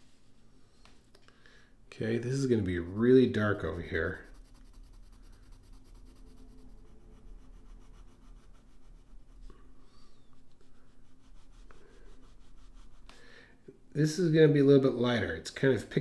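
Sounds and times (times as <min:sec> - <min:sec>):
pencil scratching on paper: 0:02.4 - 0:09.6, 0:10.2 - 0:13.1.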